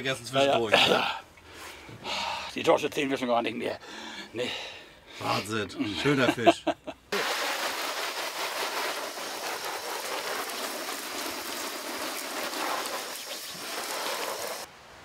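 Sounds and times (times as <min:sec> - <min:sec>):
hose nozzle spraying water: 0:07.1 - 0:14.7.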